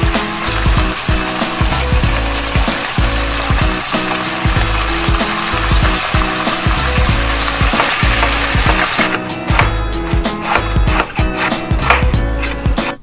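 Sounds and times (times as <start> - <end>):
pork frying in oil: 0.0 - 10.2.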